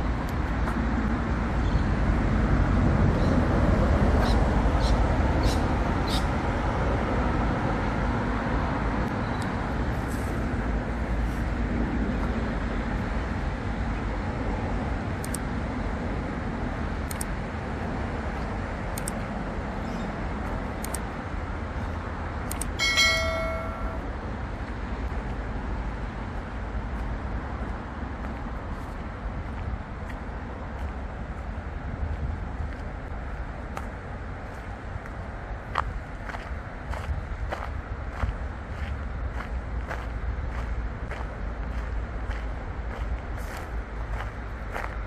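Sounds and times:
low rumble of vehicle traffic: 0.0 - 45.0
faint sharp ticks: 15.2 - 15.5, 17.0 - 17.3, 18.9 - 19.2, 20.8 - 21.0, 22.5 - 22.8
short ringing tone: 22.8 - 24.1.

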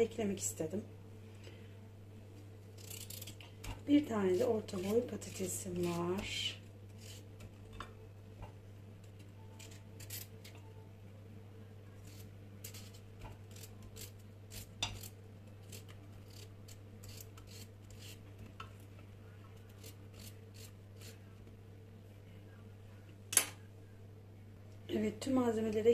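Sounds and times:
faint steady hum: 0.0 - 25.9
knife cutting potato: 2.8 - 7.8, 9.4 - 10.5, 12.0 - 18.2, 19.6 - 21.3.

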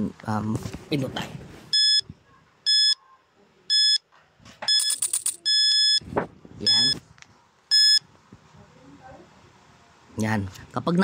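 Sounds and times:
coin rattling into machine: 4.7 - 5.8
longer electronic beep: 6.6 - 7.0
short high electronic beeps: 6.7 - 7.0.

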